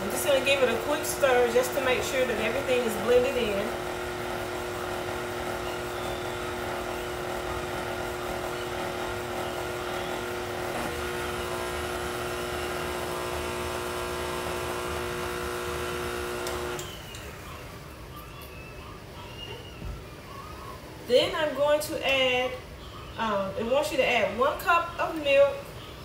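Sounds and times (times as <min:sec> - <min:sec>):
stand mixer motor whine: 0:00.0 - 0:17.3.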